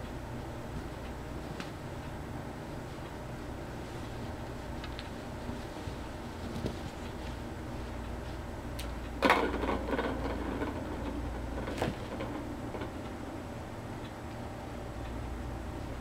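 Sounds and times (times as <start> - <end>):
steady low hum: 0.0 - 16.0
kittens scuffling: 3.8 - 8.4.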